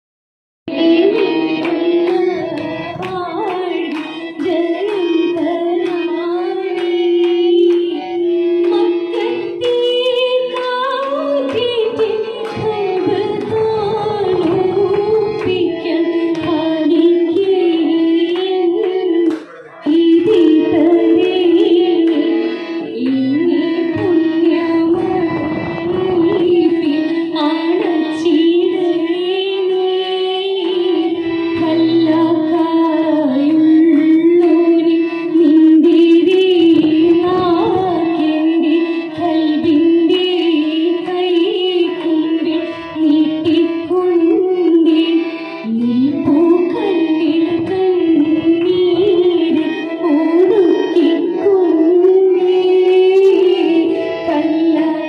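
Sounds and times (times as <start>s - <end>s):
harmonium: 0.7s - 55.0s
women singing into microphones: 0.7s - 55.0s
hand-clapping: 1.2s - 20.5s.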